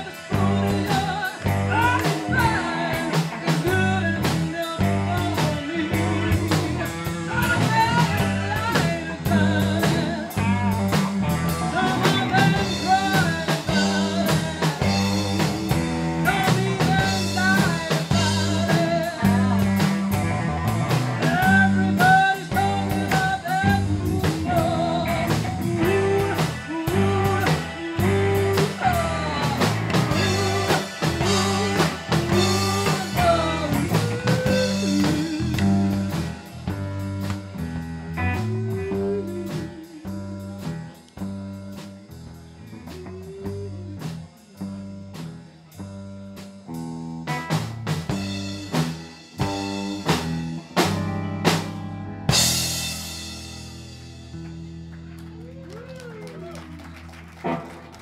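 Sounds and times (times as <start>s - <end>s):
woman singing: 0.0s - 20.2s, 21.2s - 36.3s, 38.3s - 40.8s, 42.9s - 44.1s
bass guitar: 0.0s - 58.0s
drum kit: 0.0s - 58.0s
electric guitar: 0.0s - 58.0s.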